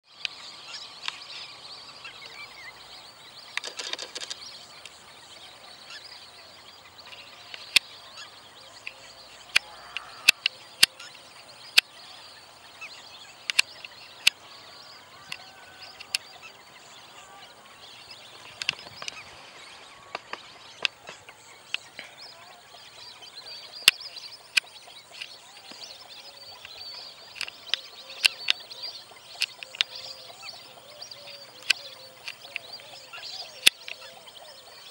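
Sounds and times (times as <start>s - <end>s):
birds calling: 0.0s - 34.9s
sharp clicks: 3.5s - 5.0s, 7.1s - 7.9s, 8.8s - 11.1s, 13.4s - 14.4s, 18.4s - 19.2s, 26.6s - 28.7s, 29.3s - 30.1s, 31.6s - 32.8s.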